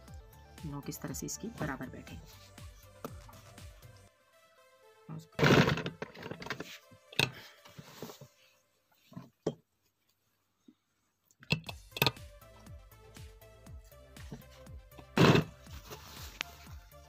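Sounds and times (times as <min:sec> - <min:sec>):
cloth rustling: 0:15.2 - 0:16.9.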